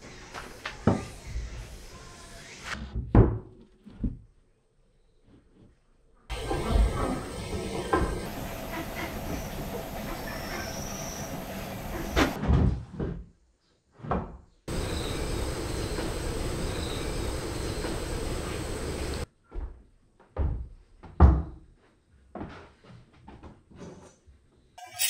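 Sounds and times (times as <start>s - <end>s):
steady background noise: 6.3s - 12.4s, 14.7s - 19.3s.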